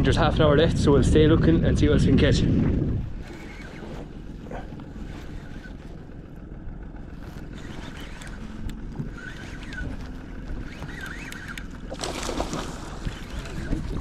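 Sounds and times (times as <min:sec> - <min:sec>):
wind rumble: 0:00.0 - 0:14.0
rippling water: 0:03.0 - 0:14.0.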